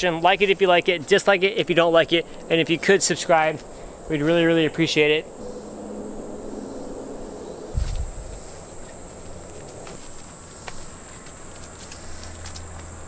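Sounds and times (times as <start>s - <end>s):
insects chirring: 0.0s - 13.0s
dull low thump: 7.7s - 10.0s.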